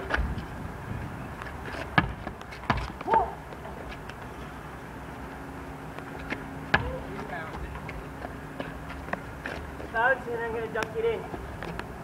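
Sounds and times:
basketball bouncing: 1.9 - 3.1.

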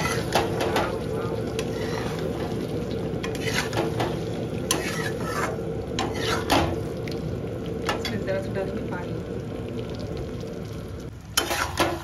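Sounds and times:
spoon knocking and scraping pan: 0.0 - 1.0, 3.2 - 6.8, 11.4 - 12.0
gravy sizzling in a pan: 0.0 - 12.0.

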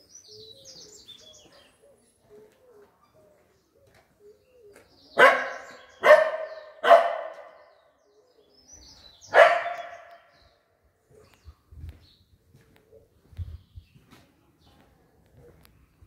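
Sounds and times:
dog barking: 5.2 - 7.7, 9.3 - 10.2.

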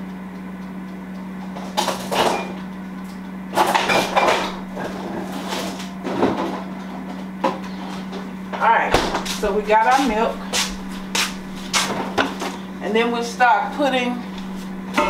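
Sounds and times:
refrigerator hum: 0.0 - 15.0
refrigerator door opening and shutting: 3.5 - 6.7, 8.6 - 10.3.

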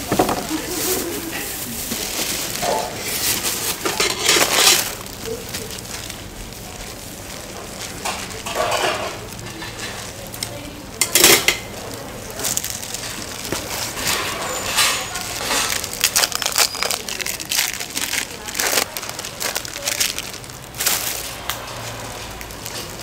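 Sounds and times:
dishes and utensils clinking: 0.0 - 5.1, 8.0 - 10.1, 11.0 - 11.8, 13.0 - 18.2
packaging crinkling: 0.0 - 23.0.

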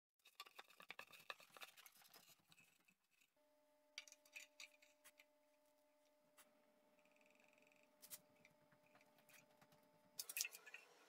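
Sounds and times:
faint steady hum: 2.6 - 11.0.

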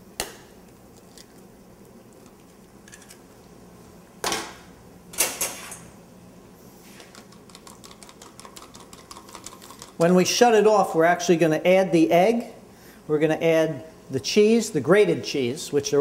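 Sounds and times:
low kitchen background: 0.0 - 16.0.

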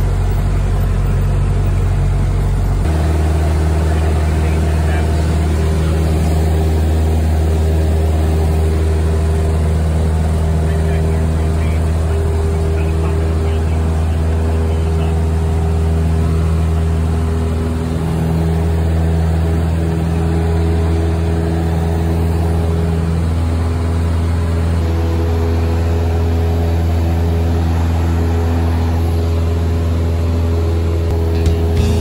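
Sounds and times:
light aircraft engine drone: 0.0 - 32.0.

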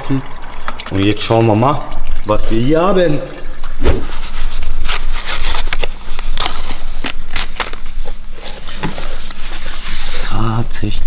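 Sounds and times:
paper filter snipping and ripping: 4.6 - 8.2.

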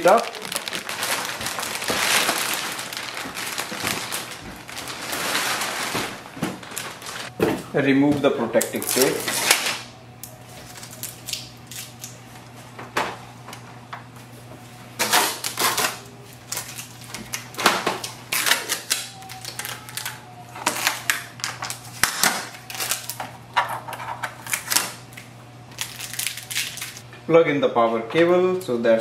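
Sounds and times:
tape peeling: 18.0 - 23.2.

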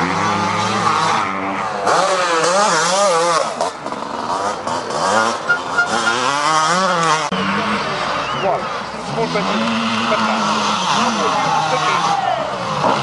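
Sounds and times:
motorcycle engine revving: 0.0 - 13.0.

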